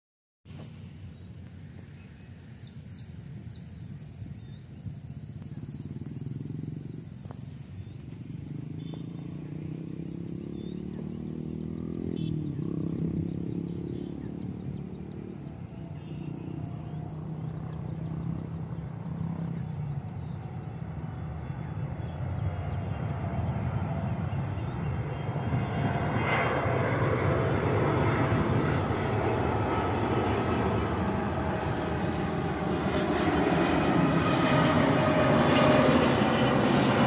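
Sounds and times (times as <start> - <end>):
airliner engines droning: 0.5 - 37.0
bird chirps: 1.0 - 23.1.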